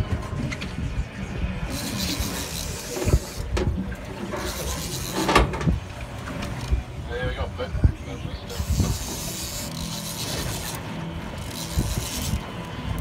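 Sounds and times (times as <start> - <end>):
wind buffeting microphone: 0.0 - 4.1, 6.8 - 9.5.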